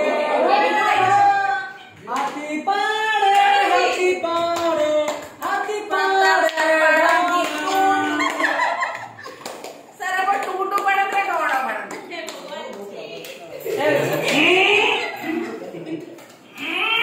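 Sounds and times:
group of people singing: 0.0 - 8.7.

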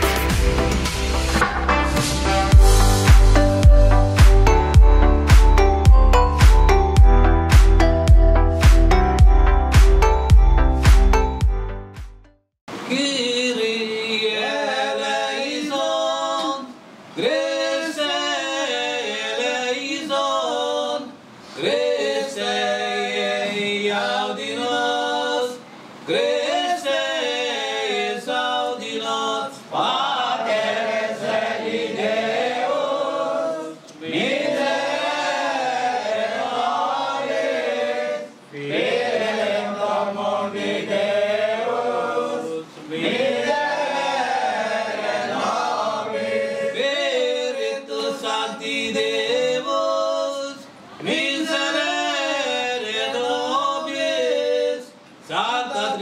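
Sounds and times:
group singing a hymn: 14.1 - 56.0.

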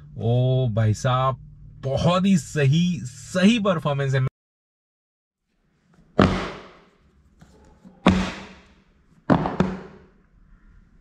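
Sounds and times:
faint low hum: 0.0 - 4.3.

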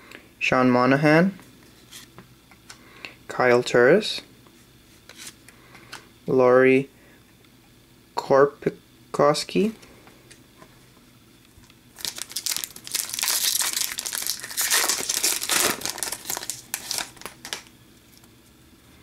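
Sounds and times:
card pack wrapper tearing and crinkling: 11.9 - 17.7.

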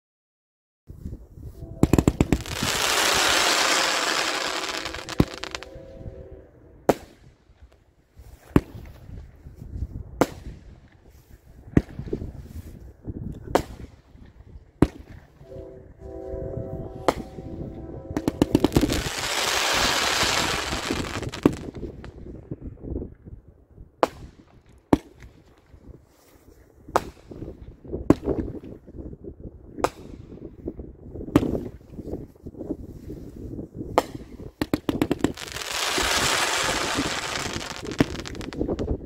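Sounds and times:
firework shots banging: 1.8 - 5.7
firework comet tails crackling: 1.8 - 6.2, 16.9 - 22.1, 34.6 - 39.0.

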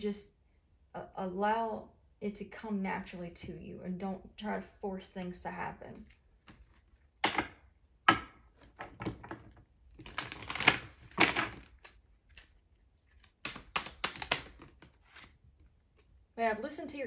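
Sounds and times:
cards tapping and sliding: 6.0 - 7.5, 10.0 - 16.1
cards riffling: 9.9 - 16.1.

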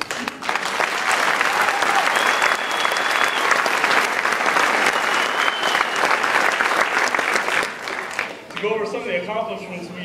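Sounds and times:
audience applauding: 0.0 - 8.7
high whistles: 1.9 - 3.8, 4.7 - 6.3.

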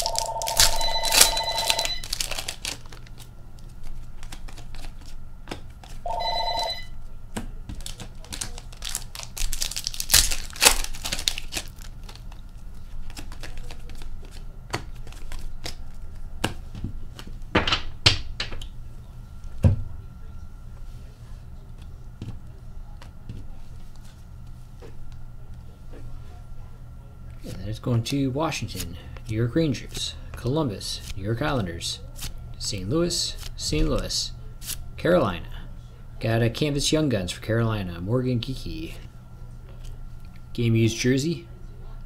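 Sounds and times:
telephone ringing: 0.0 - 2.1, 6.0 - 7.0
foil wrappers rustling and tearing: 0.0 - 5.2, 7.7 - 15.9.

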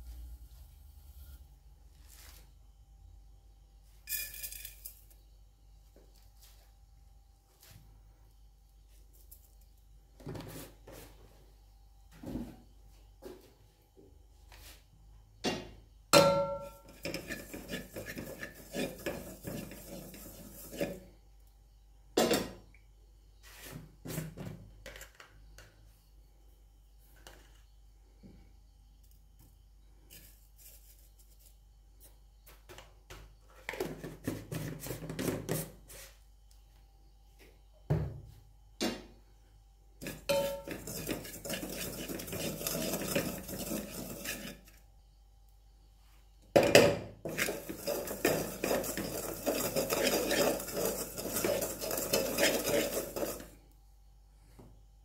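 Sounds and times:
spoon knocking against pot: 15.4 - 17.1, 40.3 - 40.8
wooden spoon scraping a pot: 16.6 - 21.2, 33.6 - 36.2, 40.0 - 44.9, 47.2 - 53.6.

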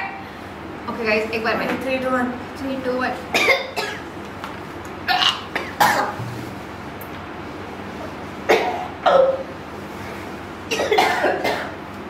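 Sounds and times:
women coughing: 3.3 - 4.0, 5.1 - 6.2, 8.5 - 9.4, 10.7 - 11.8.

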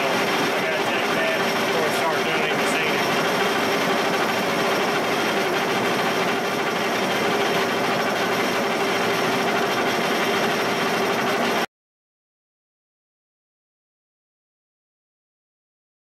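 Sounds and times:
milling machine humming: 0.0 - 11.7.

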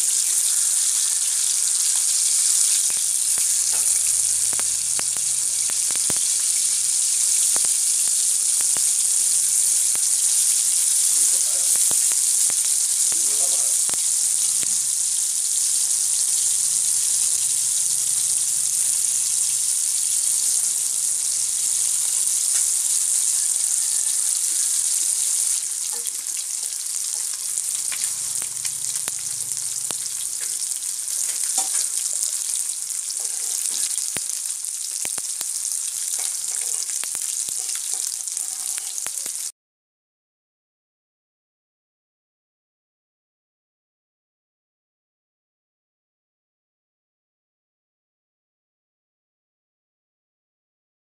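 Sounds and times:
fish sizzling in hot oil: 0.0 - 39.5.

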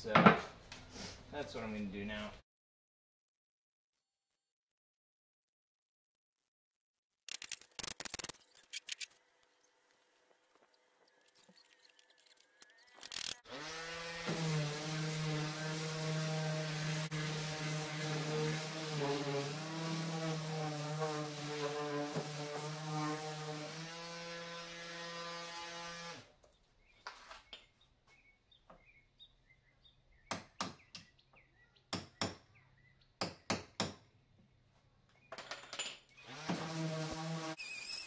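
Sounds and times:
orbit sander humming: 13.4 - 26.2.

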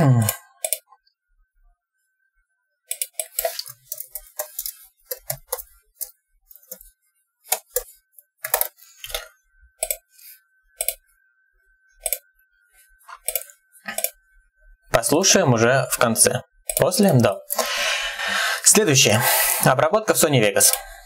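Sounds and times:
computer keyboard typing: 2.9 - 6.8, 7.5 - 9.2, 9.8 - 10.0, 13.1 - 14.2, 16.7 - 17.3.

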